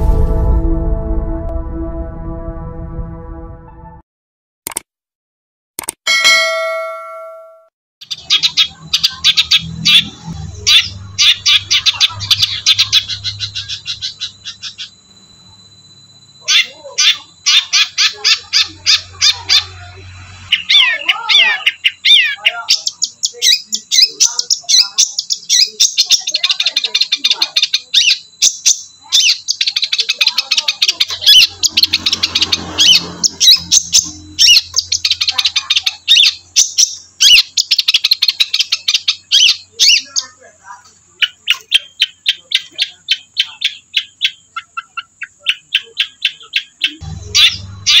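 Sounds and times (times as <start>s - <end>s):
bird singing high chattering notes: 8.0s - 48.0s.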